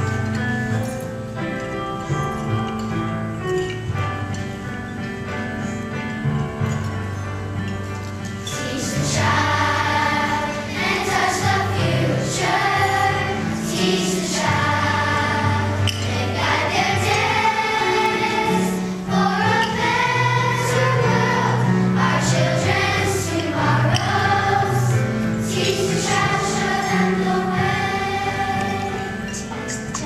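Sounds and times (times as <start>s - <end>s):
low accompanying chords: 0.0s - 30.0s
children's choir singing: 8.3s - 30.0s.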